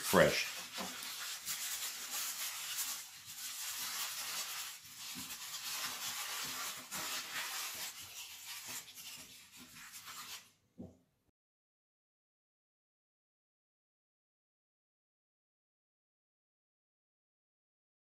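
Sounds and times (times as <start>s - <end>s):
aluminium foil crinkling: 0.0s - 10.6s.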